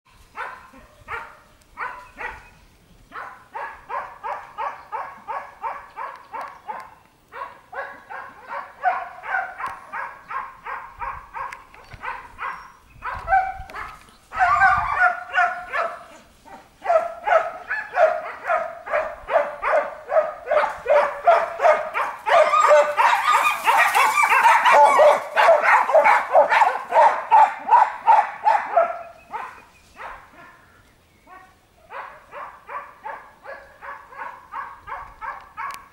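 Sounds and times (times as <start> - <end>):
hound baying: 3.2 - 30.6.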